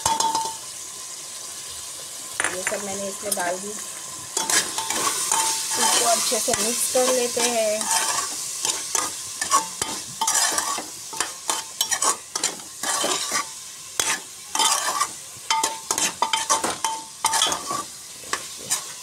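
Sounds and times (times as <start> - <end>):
food sizzling in oil: 0.0 - 19.0
metal spoon scraping pot: 4.4 - 19.0.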